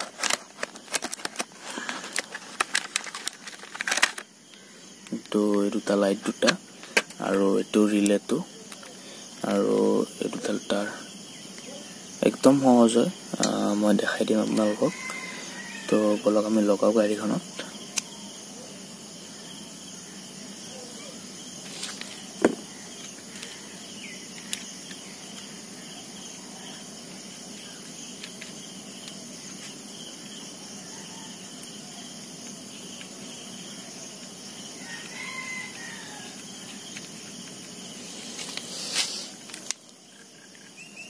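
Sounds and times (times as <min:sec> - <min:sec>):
insects chirring: 0:00.0 - 0:41.0
faint rooster crowing: 0:14.6 - 0:16.4, 0:30.6 - 0:32.1, 0:34.6 - 0:36.9.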